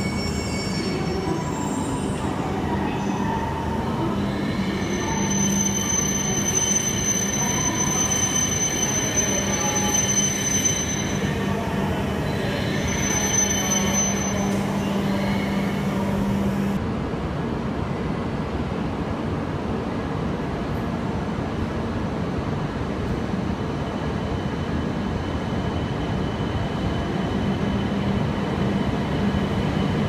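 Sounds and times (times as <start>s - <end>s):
train high-pitched whines: 0.0s - 16.8s.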